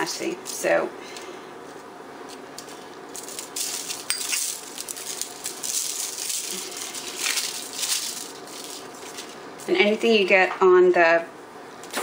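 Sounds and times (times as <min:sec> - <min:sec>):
foil crinkling: 0:02.4 - 0:09.7.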